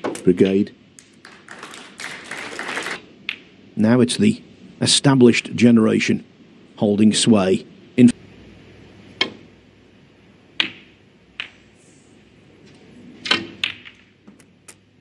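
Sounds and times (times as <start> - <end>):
snooker balls clicking: 1.0 - 3.5, 10.5 - 11.8, 12.6 - 14.9
cue tip striking ball: 10.6 - 11.7, 13.2 - 14.2.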